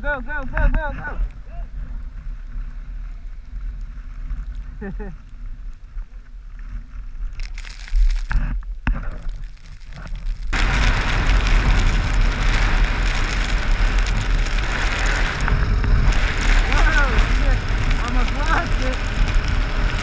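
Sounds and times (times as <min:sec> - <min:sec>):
wind buffeting microphone: 0:08.5 - 0:20.0.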